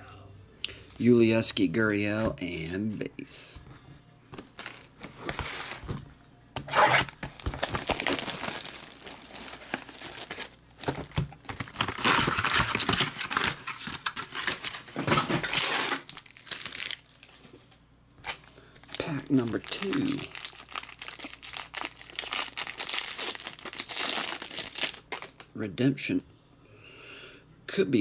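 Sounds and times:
packaging tearing and crinkling: 6.7 - 17.4, 18.2 - 25.5.

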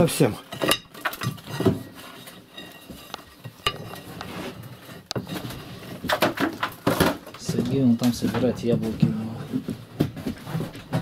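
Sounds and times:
metal poker scraping in flue: 0.6 - 6.2.

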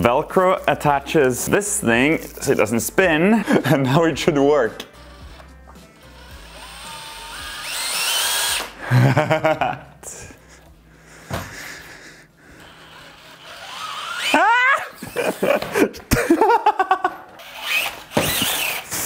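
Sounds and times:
cordless drill motor whining: 4.8 - 8.8, 12.4 - 15.7, 17.4 - 19.0.

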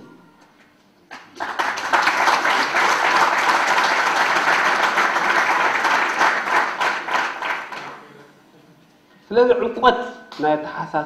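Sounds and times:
audience applauding: 1.1 - 8.1.

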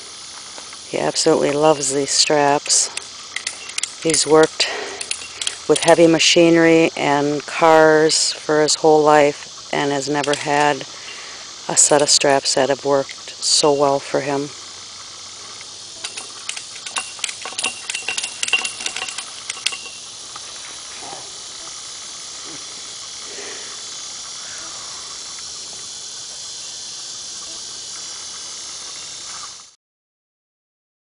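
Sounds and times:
high insect hiss: 0.0 - 29.8
ratchet strap clicking: 2.7 - 6.0, 15.4 - 20.9.

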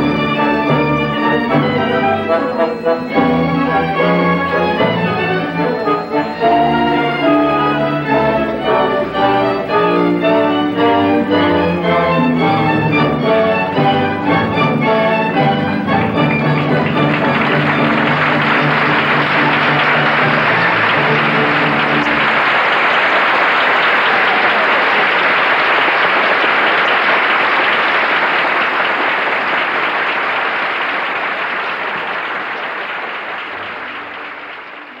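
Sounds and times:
music holding steady notes: 0.0 - 22.8
audience applauding: 0.0 - 35.0.

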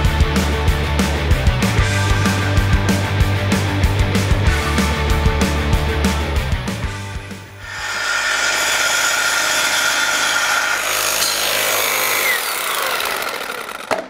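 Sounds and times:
reciprocating saw cutting steel: 7.6 - 14.0.

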